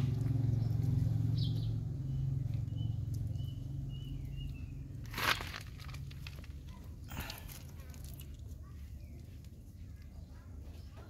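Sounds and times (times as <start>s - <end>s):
puppies scuffling on dirt: 2.6s - 10.0s.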